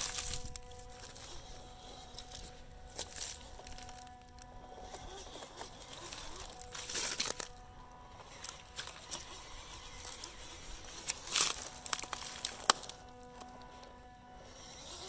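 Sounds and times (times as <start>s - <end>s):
dry leaves and twigs crunching: 0.0s - 15.0s
faint steady hum: 0.0s - 15.0s
twig snapping: 5.8s - 7.6s, 11.0s - 13.6s.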